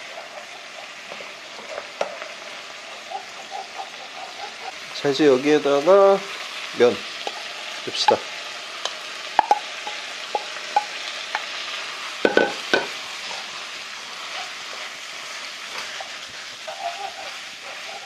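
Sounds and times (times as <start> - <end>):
wooden spatula scraping pan: 0.0 - 4.8, 12.3 - 18.0
noodles sizzling in a wok: 0.0 - 18.0.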